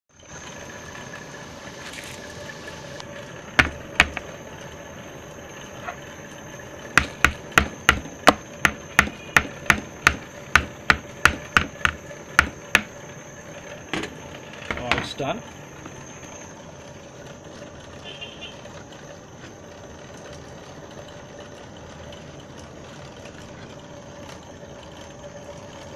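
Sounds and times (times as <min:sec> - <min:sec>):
steady background hum: 0:00.1 - 0:25.9
utensil knocking on cooking pot: 0:07.0 - 0:12.9.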